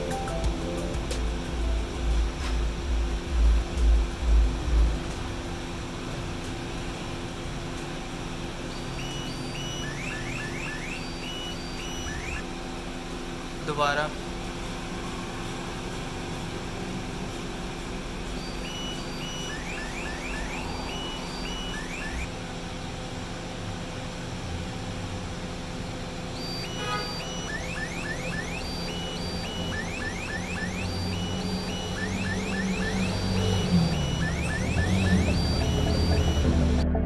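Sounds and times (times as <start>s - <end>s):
steady low hum: 0.0s - 37.0s
electronic alarm: 8.6s - 12.6s, 18.3s - 22.3s, 26.3s - 36.9s.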